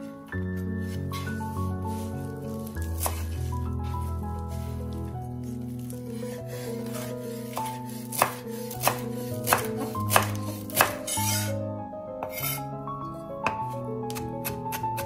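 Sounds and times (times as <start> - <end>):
background music: 0.0 - 15.0
knife chopping on cutting board: 2.9 - 3.2, 6.2 - 11.5, 12.2 - 12.6, 13.4 - 15.0.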